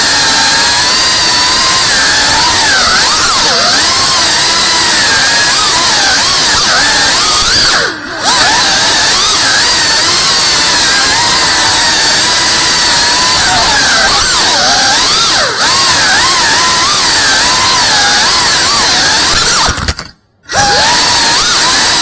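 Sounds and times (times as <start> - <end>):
quadcopter motors whining: 0.0 - 22.0.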